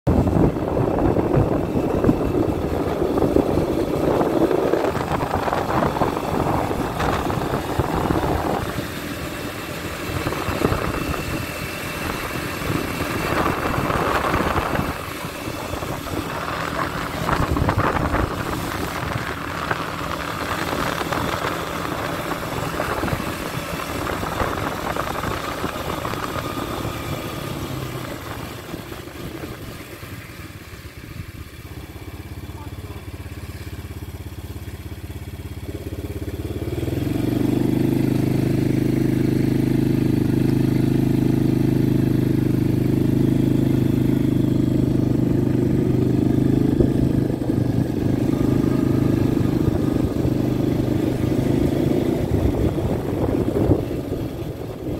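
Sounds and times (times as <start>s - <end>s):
atv engine running: 0.1s - 54.9s.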